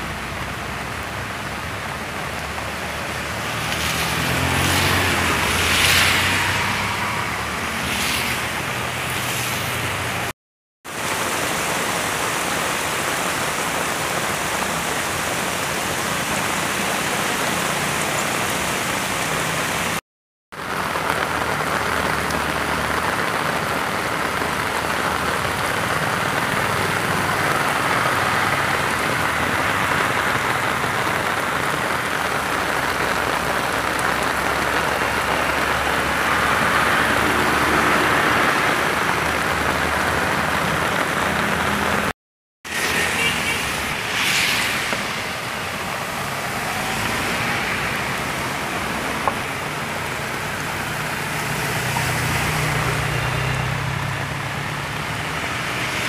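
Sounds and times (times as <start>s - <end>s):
heavy rain on street: 0.0s - 56.0s
running water: 10.9s - 20.0s.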